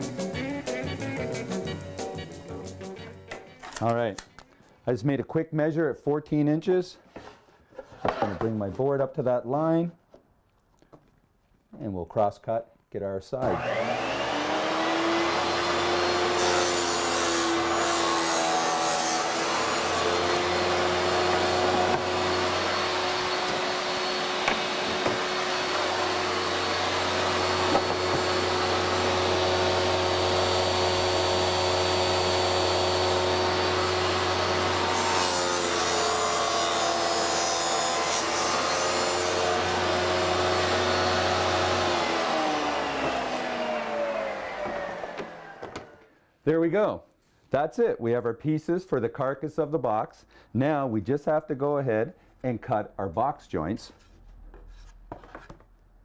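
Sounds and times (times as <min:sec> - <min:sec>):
saw blade cutting plywood: 0:13.4 - 0:46.0
table saw motor hum: 0:13.4 - 0:46.1.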